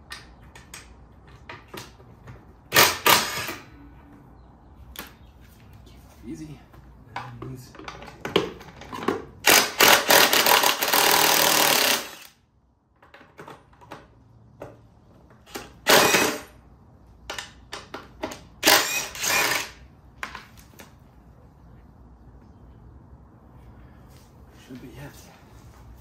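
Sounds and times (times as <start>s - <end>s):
impact driver hammering bolts: 2.7s - 3.6s, 8.0s - 12.4s, 15.5s - 16.5s, 17.3s - 19.8s.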